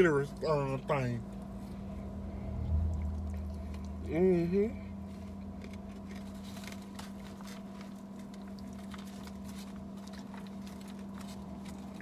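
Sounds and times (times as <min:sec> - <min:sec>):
steady low hum: 0:00.0 - 0:12.0
chewing and crunching salad: 0:02.6 - 0:04.3, 0:05.0 - 0:12.0.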